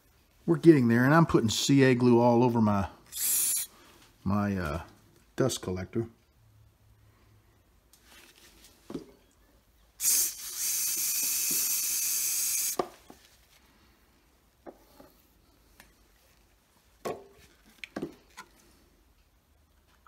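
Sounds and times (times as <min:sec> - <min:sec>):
aerosol spray hissing: 0:03.1 - 0:03.7, 0:10.0 - 0:12.8.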